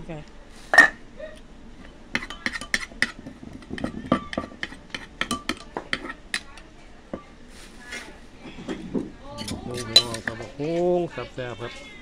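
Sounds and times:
metal spoon clinking: 0:02.2 - 0:03.1, 0:03.8 - 0:06.5, 0:09.4 - 0:10.4.

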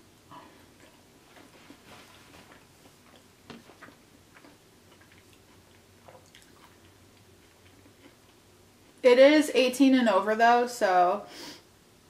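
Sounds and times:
close-up chewing: 0:00.6 - 0:09.0.

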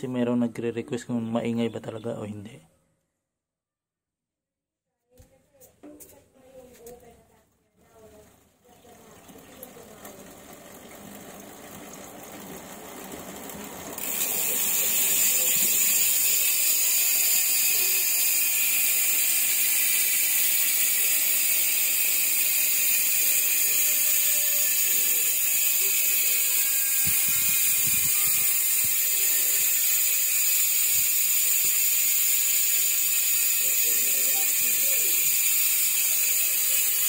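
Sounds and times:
bicycle hub freewheeling buzz: 0:07.9 - 0:37.0.

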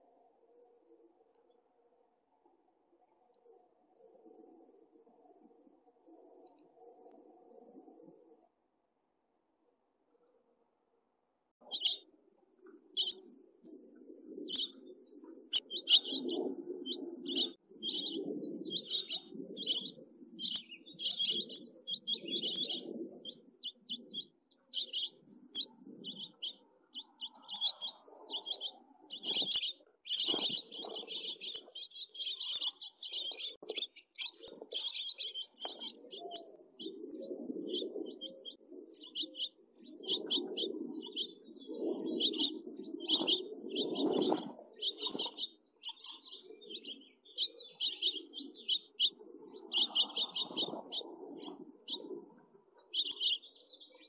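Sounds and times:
young finches chirping: 0:11.6 - 0:12.0, 0:13.0 - 0:13.2, 0:14.5 - 0:14.8, 0:15.5 - 0:36.9, 0:37.7 - 0:52.0, 0:52.9 - 0:54.0.

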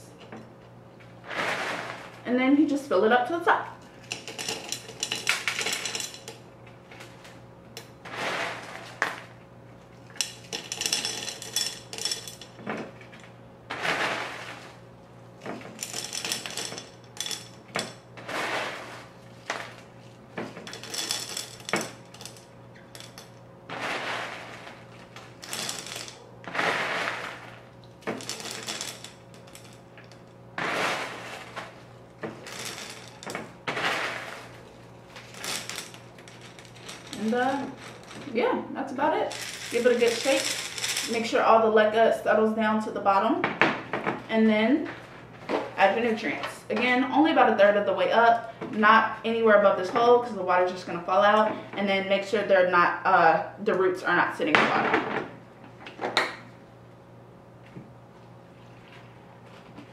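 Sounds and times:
steady low hum: 0:00.0 - 0:59.9
clay pebbles clinking against glass: 0:03.9 - 0:06.4, 0:10.1 - 0:12.6, 0:15.5 - 0:38.4, 0:39.3 - 0:41.4.

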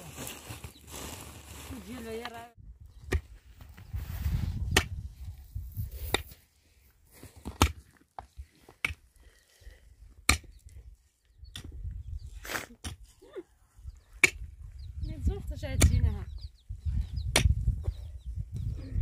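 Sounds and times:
pickaxe striking stony soil: 0:07.4 - 0:08.0, 0:10.2 - 0:10.6, 0:14.2 - 0:14.5, 0:17.3 - 0:17.6.

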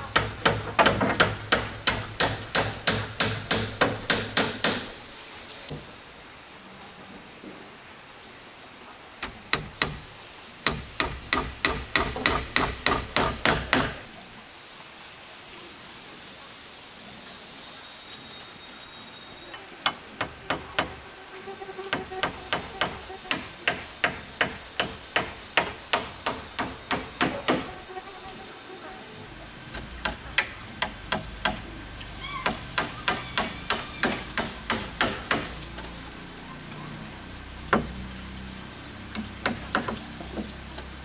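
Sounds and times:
hammer driving nails into wood: 0:00.2 - 0:04.9, 0:10.6 - 0:14.0.

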